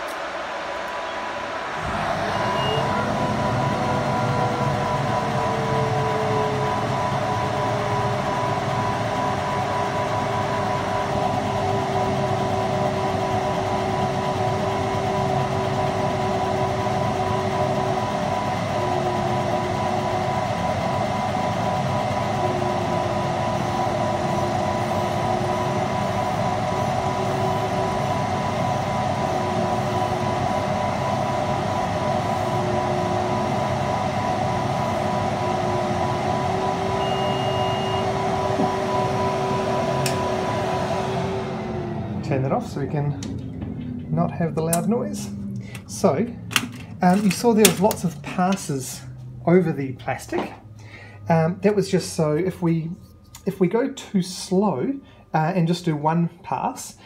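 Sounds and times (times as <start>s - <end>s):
laser engraver whirring: 0.0s - 43.1s
machine hum: 0.0s - 57.0s.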